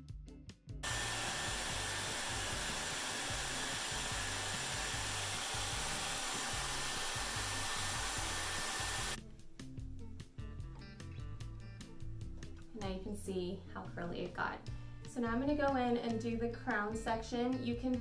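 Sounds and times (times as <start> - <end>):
hair styler blowing air: 0.8 - 9.2.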